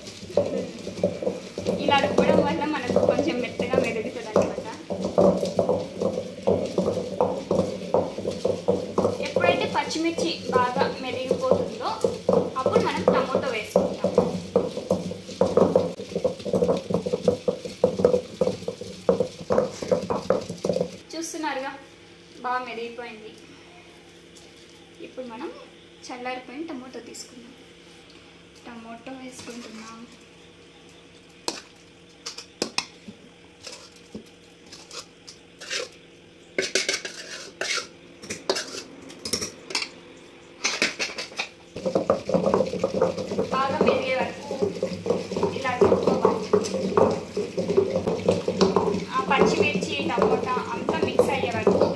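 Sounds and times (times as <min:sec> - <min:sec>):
stone pestle pounding in mortar: 0:00.0 - 0:21.0, 0:40.6 - 0:51.9
steel spoon scraping a pan: 0:34.7 - 0:36.0, 0:36.6 - 0:39.9.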